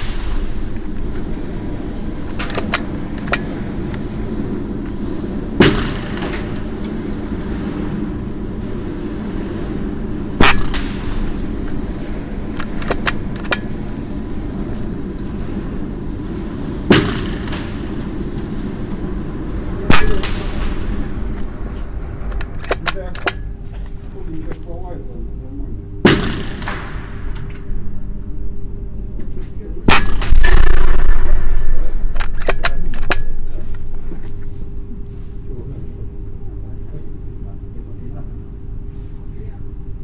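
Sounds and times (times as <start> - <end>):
air rifle shot: 0.0 - 21.6, 26.0 - 27.4, 29.9 - 32.1
low hum: 0.0 - 40.0
rifle action clicks: 12.6 - 13.7.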